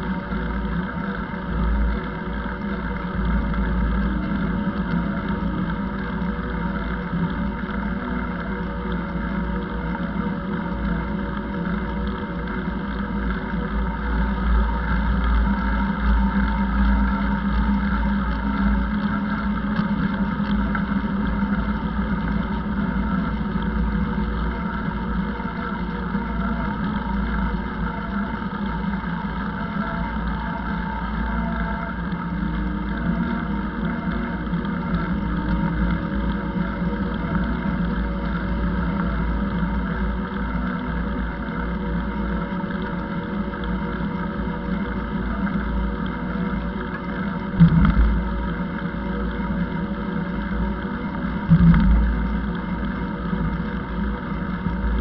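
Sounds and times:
bicycle rolling noise: 0:00.0 - 0:55.0
constant low hum: 0:00.0 - 0:55.0
wind rumble: 0:47.6 - 0:48.5, 0:51.5 - 0:52.6.

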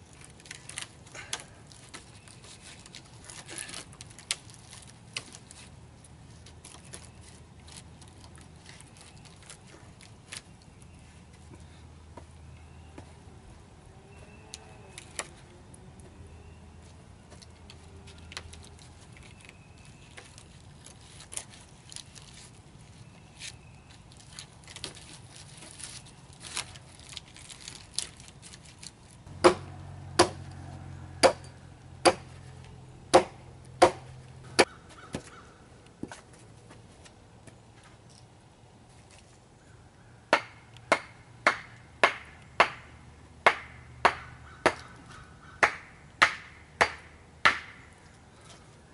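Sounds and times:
axe chopping wood: 0:29.4 - 0:30.5, 0:31.2 - 0:32.3, 0:33.1 - 0:35.3, 0:40.3 - 0:44.9, 0:45.6 - 0:47.8.

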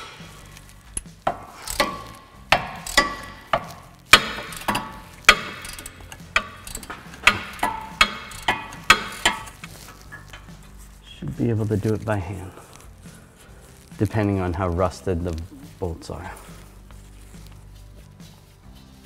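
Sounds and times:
hand ratchet clicking: 0:00.0 - 0:10.8.

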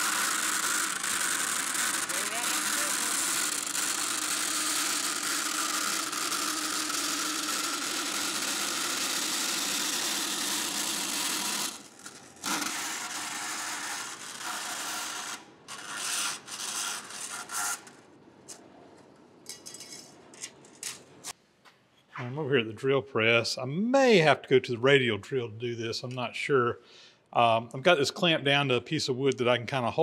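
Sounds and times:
bandsaw cutting sheet metal: 0:00.0 - 0:18.1.

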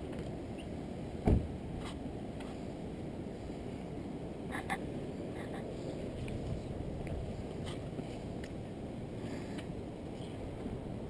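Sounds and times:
low outdoor rumble: 0:00.0 - 0:11.0
loud thump: 0:01.2 - 0:01.5.

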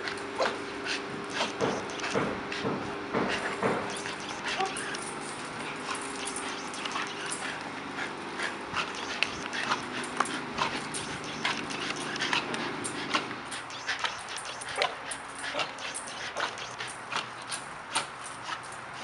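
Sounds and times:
dogs growling: 0:03.4 - 0:17.4.

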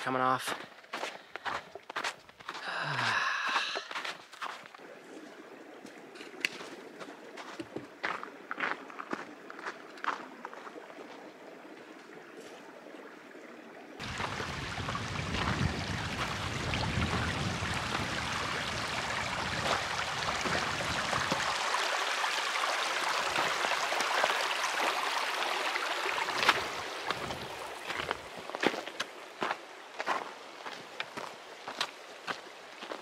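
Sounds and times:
footsteps on snow: 0:00.0 - 0:10.3, 0:26.4 - 0:33.0
creek running over rocks: 0:00.0 - 0:33.0.

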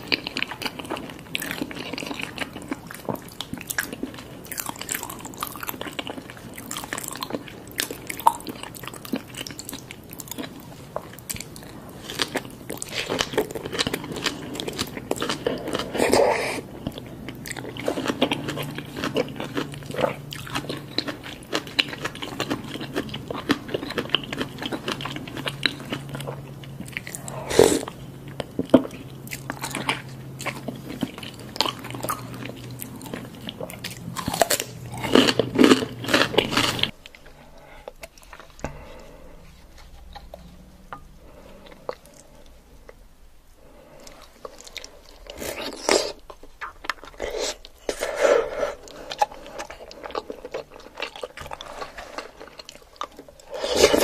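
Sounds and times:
close chewing and biting: 0:00.0 - 0:43.0, 0:43.7 - 0:54.0
low background hum: 0:00.0 - 0:54.0.

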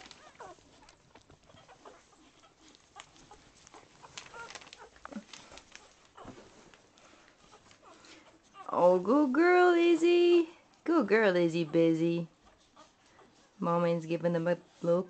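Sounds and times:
puppies squeaking: 0:00.0 - 0:09.0, 0:11.4 - 0:13.6.

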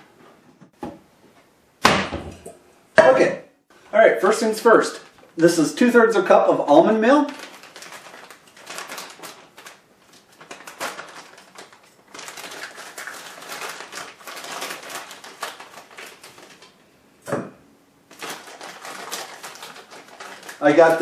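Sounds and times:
plastic bag crinkling: 0:04.6 - 0:05.5, 0:06.9 - 0:16.8, 0:18.1 - 0:21.0.

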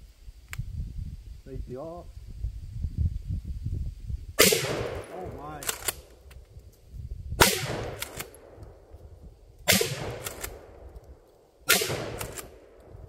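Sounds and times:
shotgun shots: 0:04.4 - 0:06.1, 0:07.4 - 0:08.5, 0:09.7 - 0:10.7, 0:11.6 - 0:12.8
shotgun slide racking clacks: 0:05.6 - 0:06.0.

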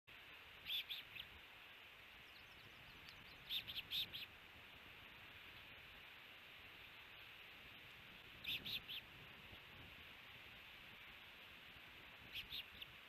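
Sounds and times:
faint hiss: 0:00.1 - 0:13.0
ospreys chirping: 0:00.6 - 0:01.4, 0:02.2 - 0:04.4, 0:08.3 - 0:09.1, 0:12.2 - 0:13.0.

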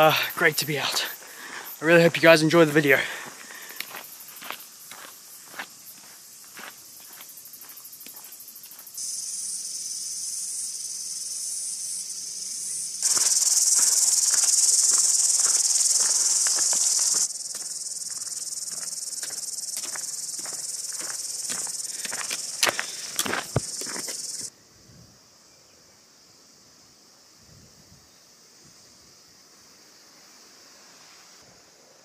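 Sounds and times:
cicadas buzzing: 0:00.0 - 0:32.0
footsteps on track: 0:03.2 - 0:08.9, 0:13.0 - 0:24.5.

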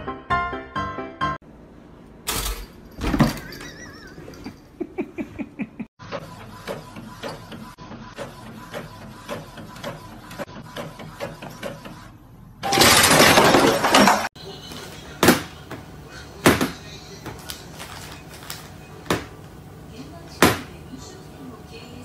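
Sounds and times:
printer printing: 0:06.0 - 0:12.9, 0:14.4 - 0:19.5.

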